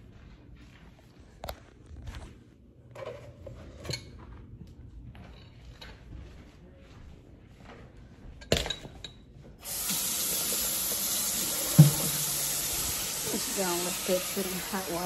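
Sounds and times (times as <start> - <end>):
tap water running into sink: 9.6 - 15.0.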